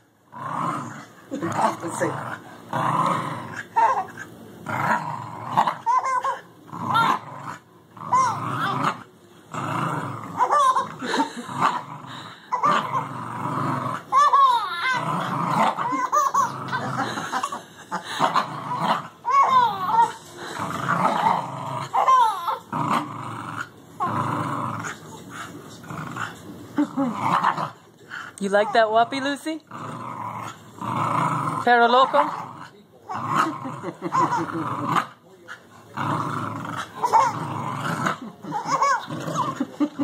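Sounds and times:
dog growling in play: 0.3s - 40.0s
baby giggling: 10.4s - 11.2s, 14.1s - 15.0s, 15.8s - 17.6s, 22.0s - 22.6s, 34.0s - 34.6s, 38.4s - 40.0s.

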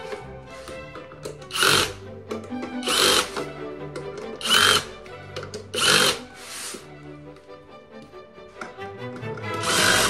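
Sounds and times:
background music: 0.0s - 10.0s
cordless drill whirring: 1.5s - 2.0s, 2.8s - 3.5s, 4.3s - 4.9s, 5.6s - 6.9s, 9.5s - 10.0s.

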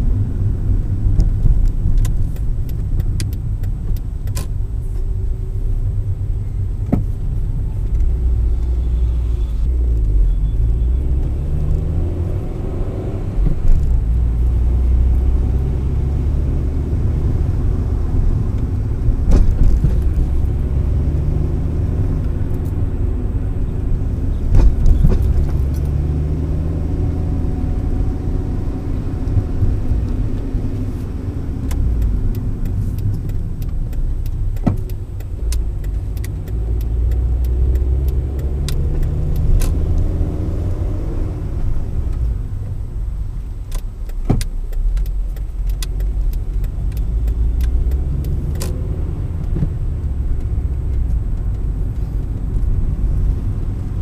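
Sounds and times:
road and engine rumble: 0.0s - 54.0s
sharp clicks and rattles: 1.0s - 4.6s, 29.3s - 40.1s, 43.4s - 54.0s
engine note rising and falling: 8.1s - 32.7s, 35.8s - 42.1s.

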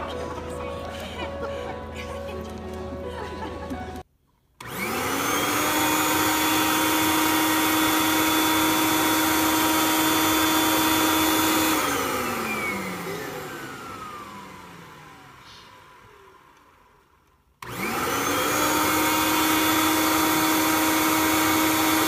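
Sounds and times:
vacuum cleaner motor: 4.6s - 22.0s.

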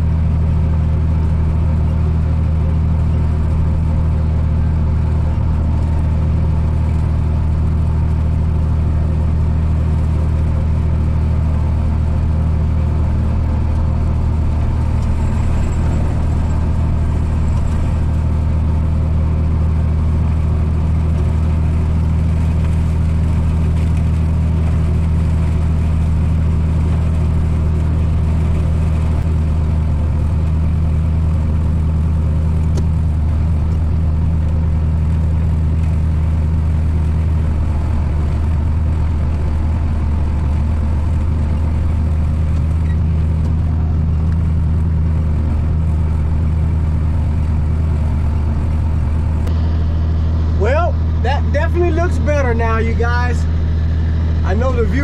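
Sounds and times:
tractor engine humming: 0.0s - 55.0s.

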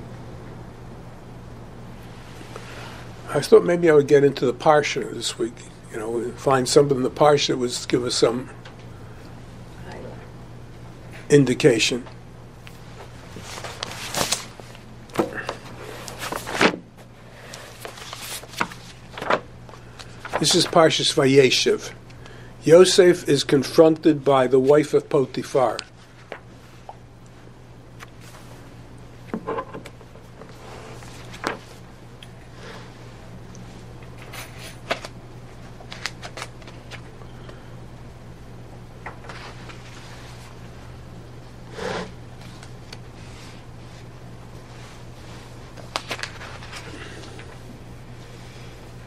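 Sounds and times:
low electrical hum: 0.0s - 49.0s
book pages rustling: 12.7s - 20.8s, 30.4s - 31.8s, 34.9s - 37.1s, 42.4s - 47.5s.

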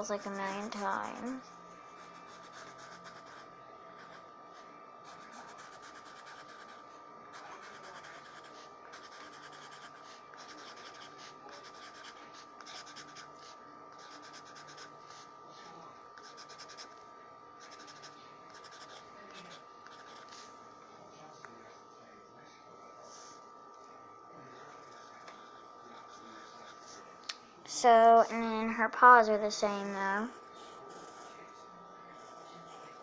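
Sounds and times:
pencil scratching on paper: 0.0s - 1.4s, 2.0s - 4.2s, 5.0s - 15.3s, 16.2s - 16.9s, 17.6s - 20.4s, 32.1s - 33.0s.

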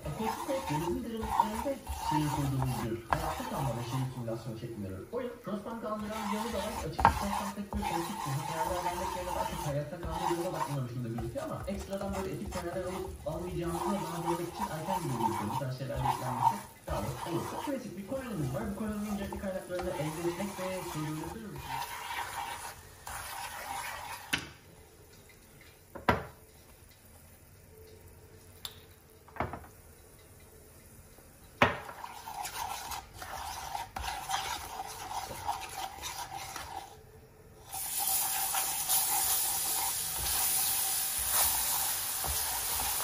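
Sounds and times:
wooden spatula scraping a pan: 0.0s - 4.6s, 5.2s - 24.5s, 31.7s - 37.0s, 37.7s - 43.0s
butter sizzling in a frying pan: 0.0s - 24.4s, 37.6s - 43.0s
spatula knocking on pan: 0.1s - 4.0s, 6.0s - 17.7s.

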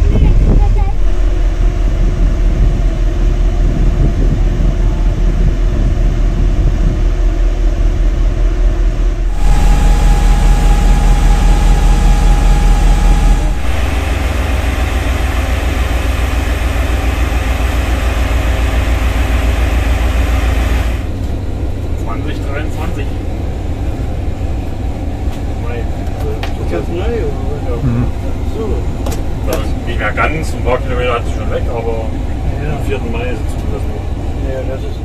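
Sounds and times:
steady high whine: 0.0s - 23.1s
diesel locomotive engine rumbling: 0.0s - 35.0s.

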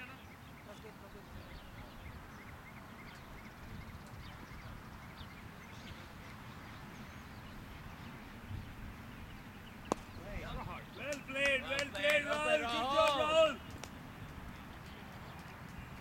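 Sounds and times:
wind rumbling on microphone: 1.1s - 11.0s.

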